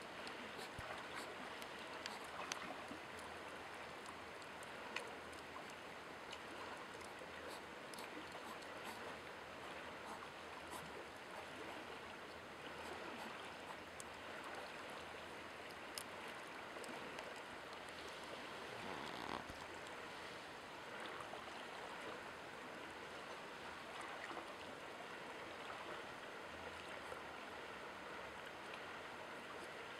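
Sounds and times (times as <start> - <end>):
faint small clicks: 0.2 - 3.3, 15.6 - 16.2.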